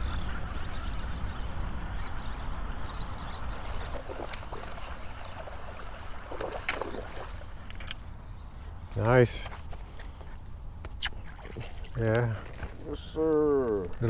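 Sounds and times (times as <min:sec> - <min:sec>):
water noise: 0:00.0 - 0:08.2, 0:10.9 - 0:14.0
fish splashing at water surface: 0:03.6 - 0:07.5.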